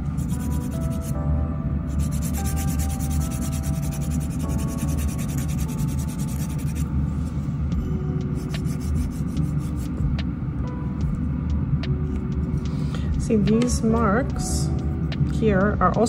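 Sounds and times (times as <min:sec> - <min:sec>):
dust collector fan hum: 0:00.0 - 0:16.0
faint background music: 0:00.0 - 0:16.0
nail file rasping on fingernail: 0:00.2 - 0:01.1, 0:02.0 - 0:06.9.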